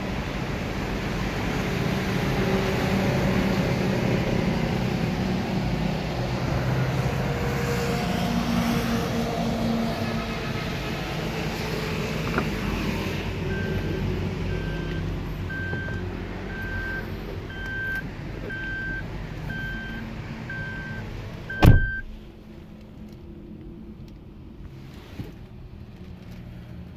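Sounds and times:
door-open warning chime beeping: 0:14.5 - 0:22.1
door slamming: 0:21.6 - 0:22.1.

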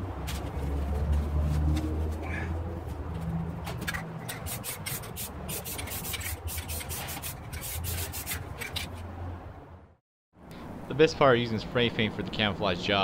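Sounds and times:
spray paint can spraying: 0:04.3 - 0:08.9.

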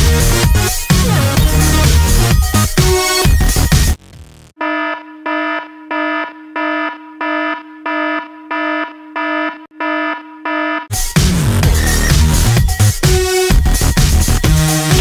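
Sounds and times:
electronic alarm beeping: 0:04.6 - 0:10.9.

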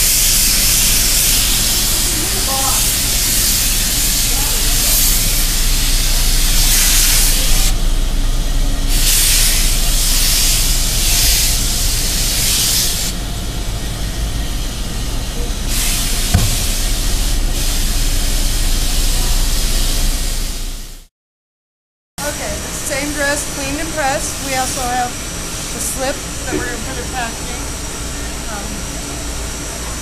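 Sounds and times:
steam iron hissing: 0:00.0 - 0:07.7, 0:15.7 - 0:18.0.

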